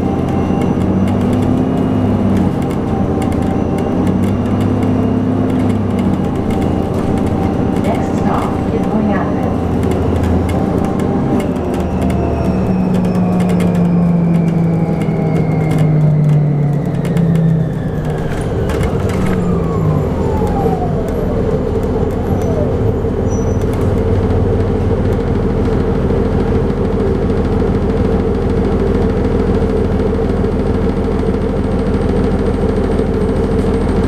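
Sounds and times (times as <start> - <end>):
bus electric drive whining: 0.0 - 34.0
rattling clicks: 0.1 - 19.6.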